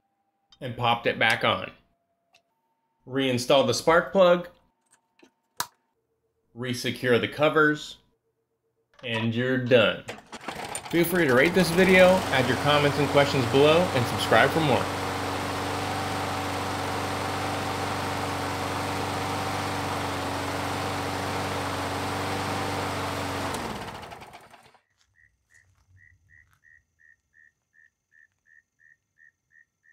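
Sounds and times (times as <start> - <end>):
mower engine running: 9.0 - 24.8.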